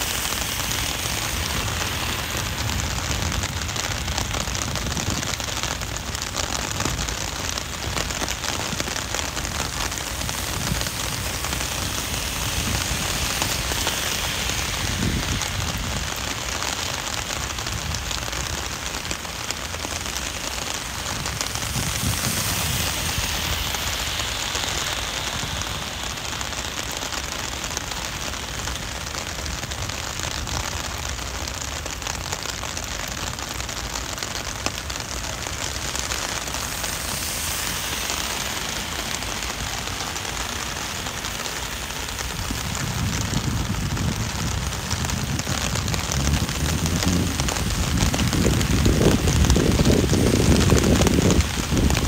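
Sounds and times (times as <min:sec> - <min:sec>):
heavy rain on pavement: 0:00.0 - 0:52.0
rain on an umbrella: 0:00.0 - 0:52.0
low rumbles: 0:42.4 - 0:52.0.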